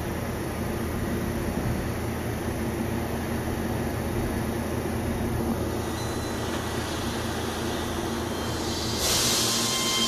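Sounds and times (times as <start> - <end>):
electric train rumbling: 0.0 - 10.0
loud air hiss: 5.6 - 10.0.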